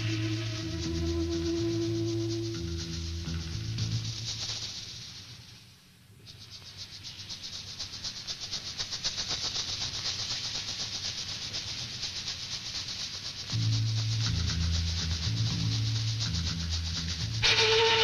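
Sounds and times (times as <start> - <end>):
low sustained music notes: 0.0 - 5.6, 13.4 - 18.0
fast pulsing hiss: 0.0 - 18.0.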